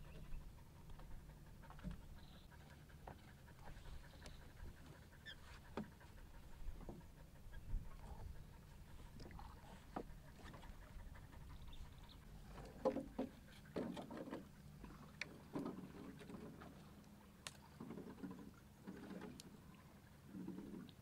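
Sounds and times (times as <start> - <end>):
water knocking against wooden hull: 12.5 - 16.8, 17.7 - 19.4.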